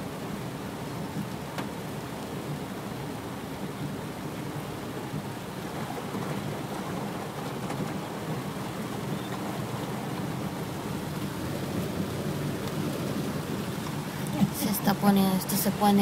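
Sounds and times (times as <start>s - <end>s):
heavy rain on car roof: 0.0s - 16.0s
raindrop ticks: 1.0s - 2.3s, 5.1s - 16.0s.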